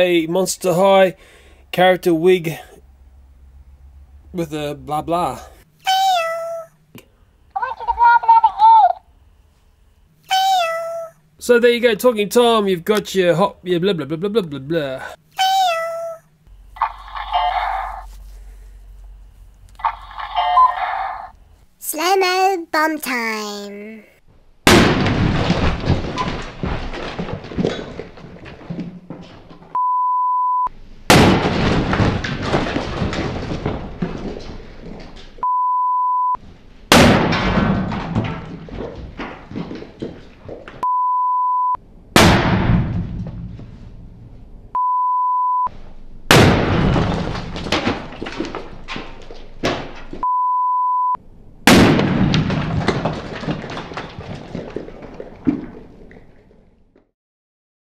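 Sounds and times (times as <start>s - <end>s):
explosive bangs with crackle: 24.6s - 29.8s, 31.1s - 35.2s, 36.9s - 40.6s, 42.1s - 44.4s, 46.3s - 50.2s, 51.6s - 56.6s
test-tone beep: 29.8s - 30.7s, 40.8s - 41.8s, 44.8s - 45.7s, 50.2s - 51.2s.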